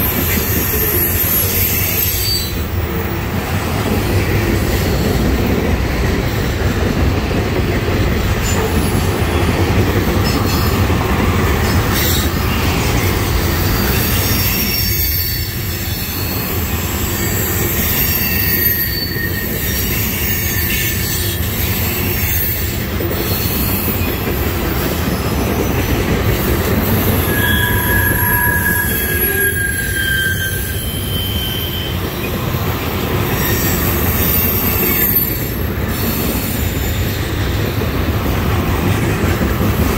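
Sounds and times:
steel wheels rumbling on rail: 0.0 - 39.9
high-pitched wheel squeals: 0.1 - 2.8, 13.4 - 24.2, 26.8 - 32.3, 33.3 - 37.3.

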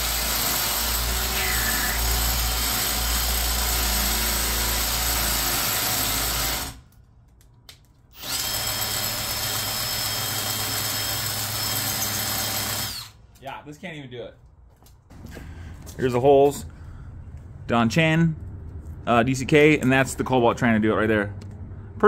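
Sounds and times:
hammer drill boring into brick: 0.0 - 6.8, 8.2 - 13.2.

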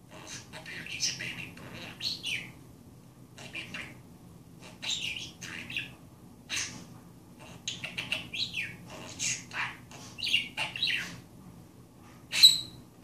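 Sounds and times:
budgerigar chirping and warbling: 0.1 - 2.6, 3.4 - 4.0, 4.6 - 6.8, 7.4 - 11.2, 12.3 - 12.8.

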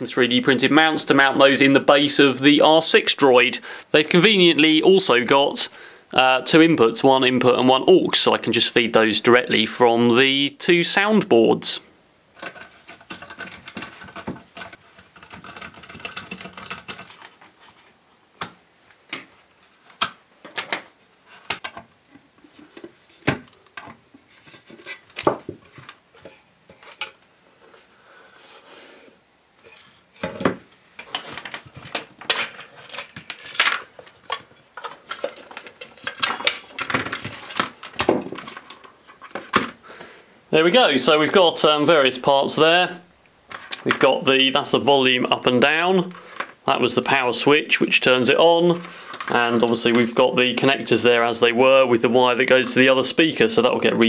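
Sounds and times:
plastic and metal clatter: 12.4 - 17.9, 30.2 - 39.8.

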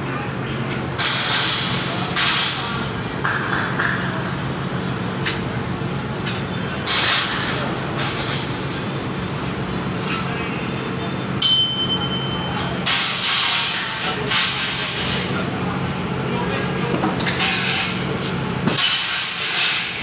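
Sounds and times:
vehicles passing: 0.0 - 11.4
street traffic hum: 0.0 - 20.0
short high beep: 11.4 - 12.7.

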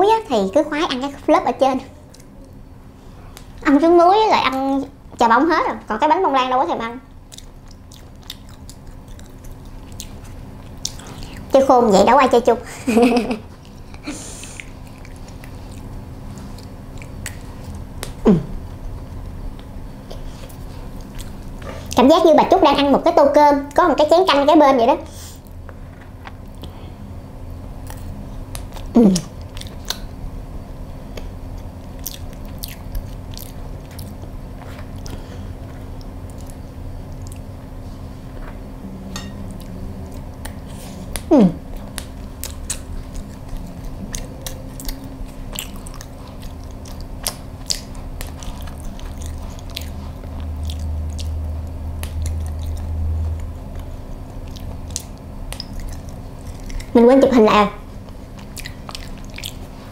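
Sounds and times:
chewing and wet mouth clicks: 7.3 - 11.5, 14.5 - 18.2, 27.8 - 30.1, 31.2 - 35.2, 36.0 - 37.5, 39.5 - 57.0, 58.0 - 59.8
person humming: 18.2 - 18.6, 41.2 - 41.7.

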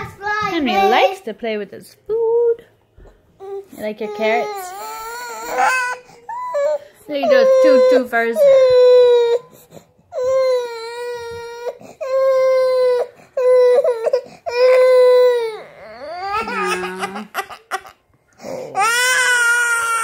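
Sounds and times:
baby crying: 3.4 - 20.0.

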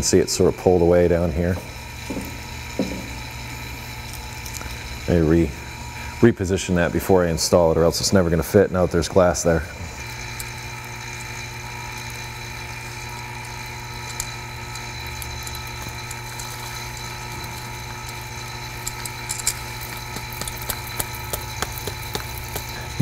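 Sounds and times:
steady machine hum: 0.0 - 23.0
rust crunching under pliers: 15.4 - 23.0.

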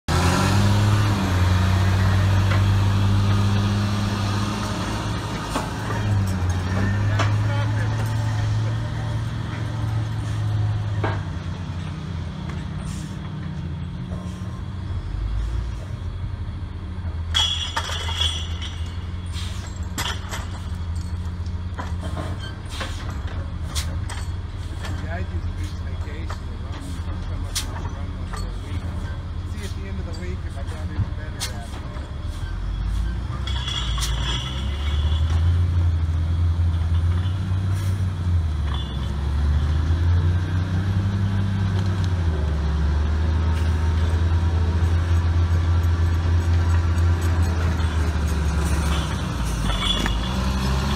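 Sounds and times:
diesel engine humming: 0.0 - 50.9
metallic clinks and clanks: 17.3 - 37.8, 38.5 - 39.4, 43.6 - 50.9.

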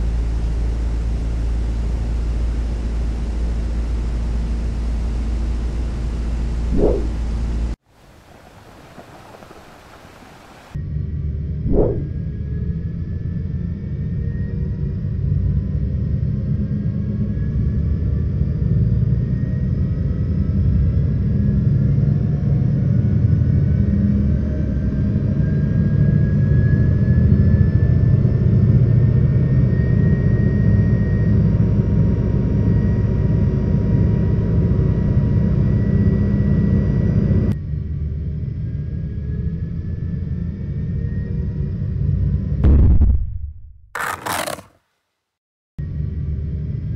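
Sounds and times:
jet engine whines gliding in pitch: 0.0 - 42.6
jet engine rumble: 4.8 - 10.8, 11.5 - 12.7.

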